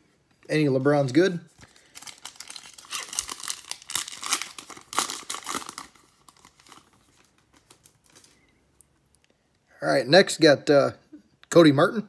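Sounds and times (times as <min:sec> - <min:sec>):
faint rustling of cards: 0:00.1 - 0:09.7
foil pack tearing and crinkling: 0:01.7 - 0:08.3.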